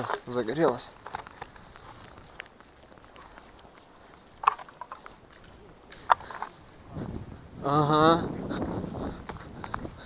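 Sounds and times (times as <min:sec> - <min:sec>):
faint footsteps on ice: 0:00.0 - 0:07.4.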